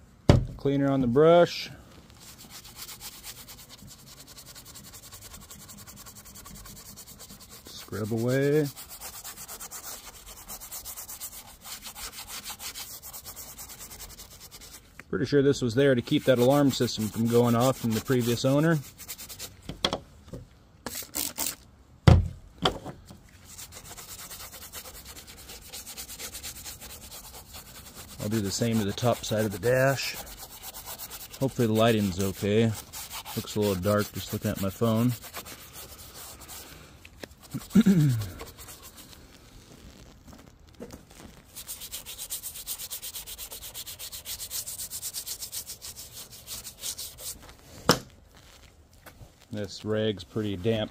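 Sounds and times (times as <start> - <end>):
brush scrubbing plastic panel: 1.5 - 14.9, 15.5 - 19.6, 23.3 - 40.1, 41.2 - 47.6.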